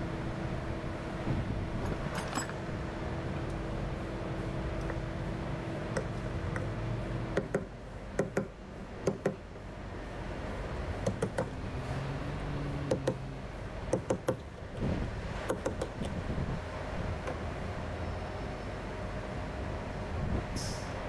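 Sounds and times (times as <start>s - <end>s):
low machinery hum: 0.0s - 21.0s
hammer tapping on metal: 7.4s - 9.4s, 11.0s - 11.5s, 13.9s - 14.4s.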